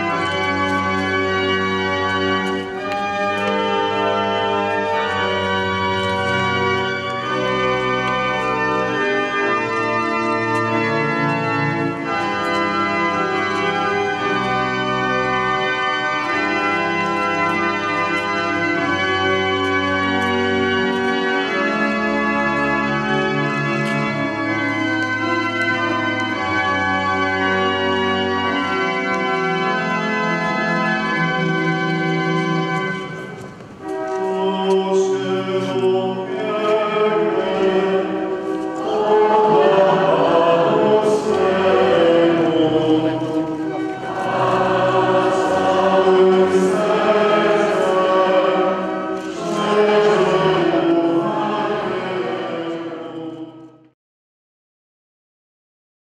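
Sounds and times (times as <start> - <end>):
church organ chords: 0.0 - 53.9
choir singing a hymn: 33.9 - 53.9.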